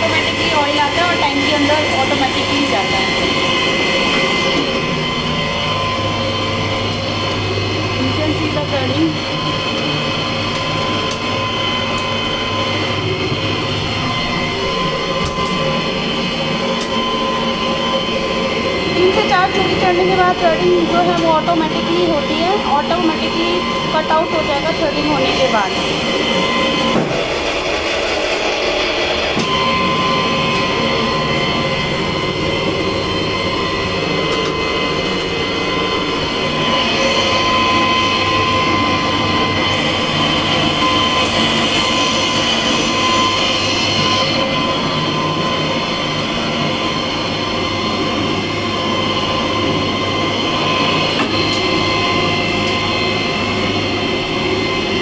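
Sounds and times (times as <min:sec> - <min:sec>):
pipe threading machine running: 0:00.0 - 0:55.0.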